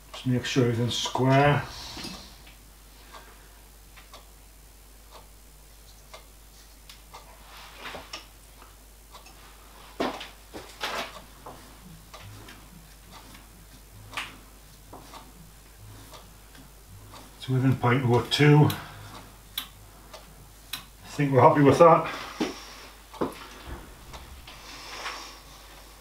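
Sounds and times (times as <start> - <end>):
metal knocks: 23.2 - 24.8.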